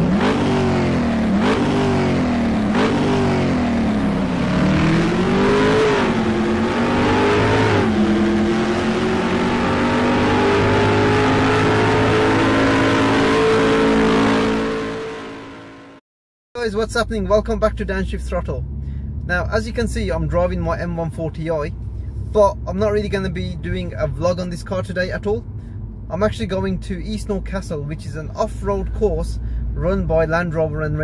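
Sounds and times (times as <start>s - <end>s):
car engine accelerating: 0.0s - 16.0s.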